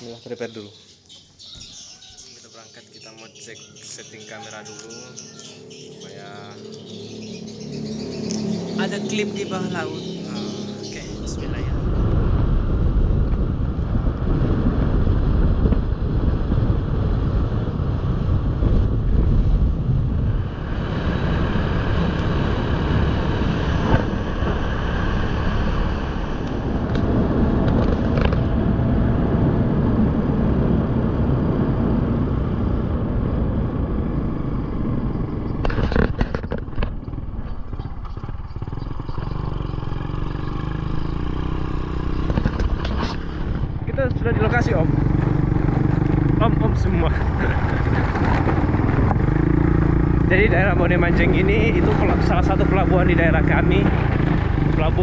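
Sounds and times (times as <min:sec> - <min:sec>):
motorcycle engine running: 0:05.2 - 0:55.0
wind rushing on microphone: 0:08.4 - 0:55.0
knocks and rattles: 0:35.6 - 0:39.4.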